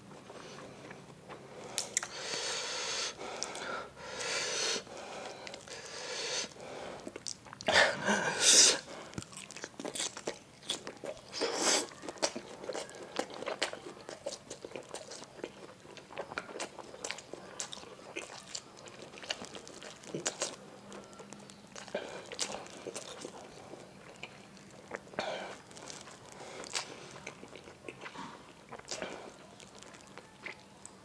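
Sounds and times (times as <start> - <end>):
person chewing wetly: 0.1 - 31.0
bites and slurps: 8.5 - 20.6.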